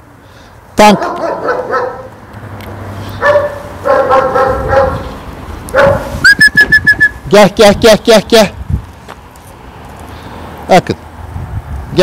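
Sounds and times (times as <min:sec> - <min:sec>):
high steady whistle: 0:06.2 - 0:07.2.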